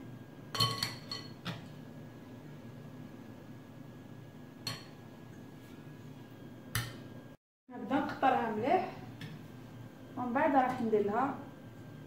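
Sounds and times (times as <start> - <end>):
forks clinking against glass bowl: 0.6 - 1.4.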